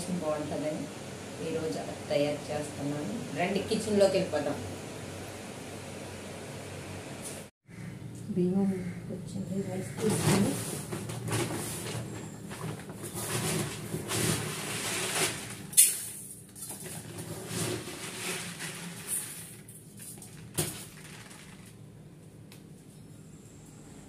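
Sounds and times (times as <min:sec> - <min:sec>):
plastic sack rustling: 0:10.0 - 0:15.9, 0:16.6 - 0:21.8.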